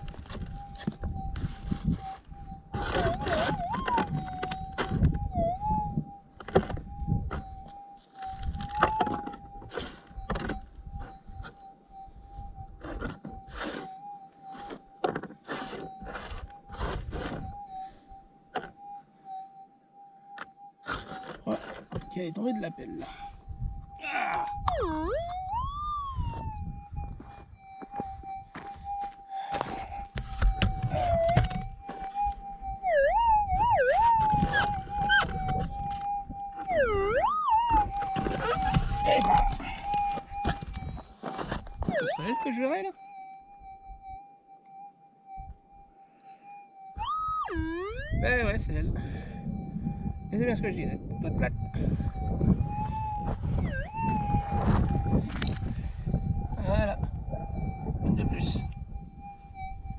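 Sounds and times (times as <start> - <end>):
dry soil scraping and crunching: 0.0 - 5.0, 8.0 - 11.5, 12.7 - 17.6, 20.8 - 22.3, 34.0 - 36.9, 52.0 - 55.8
metal detector tone: 0.0 - 11.6, 20.3 - 27.3.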